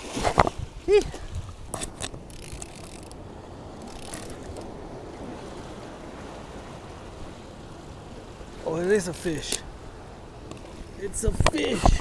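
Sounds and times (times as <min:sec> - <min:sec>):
wind noise on microphone: 0:00.0 - 0:08.2, 0:09.7 - 0:12.0
clicks and rubbing sounds: 0:00.2 - 0:00.6, 0:01.7 - 0:03.2, 0:10.5 - 0:12.0
fishing reel cranking: 0:01.7 - 0:03.2, 0:03.8 - 0:04.7.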